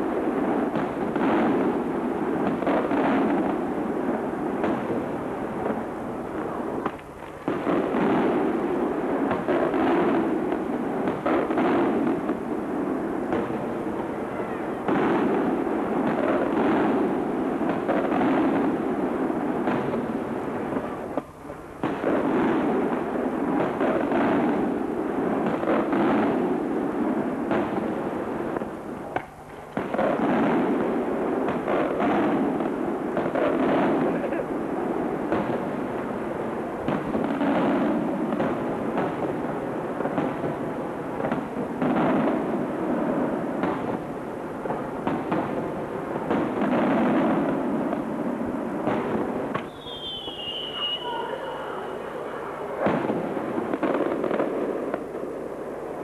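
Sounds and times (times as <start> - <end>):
firework shells bursting: 48.8 - 55.2.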